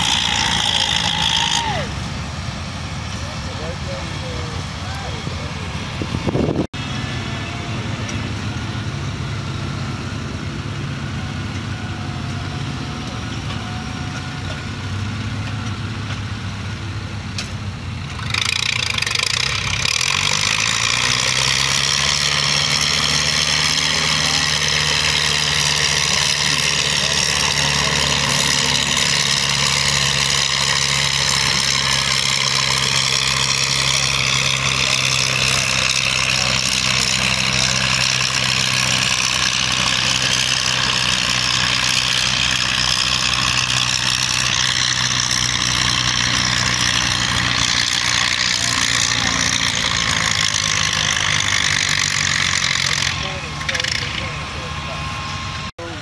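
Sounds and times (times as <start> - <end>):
tractor engine under heavy load: 0.0 - 56.0.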